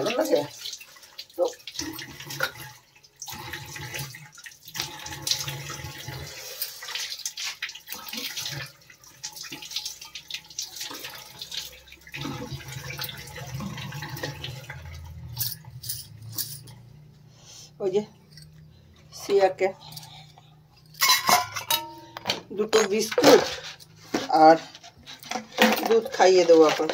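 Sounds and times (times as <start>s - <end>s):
water running from a tap: 0.0s - 16.3s.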